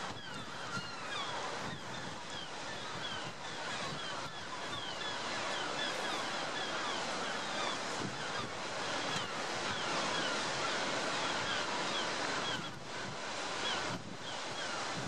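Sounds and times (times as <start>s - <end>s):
surf on rocky shore: 0.0s - 15.0s
wind: 0.0s - 15.0s.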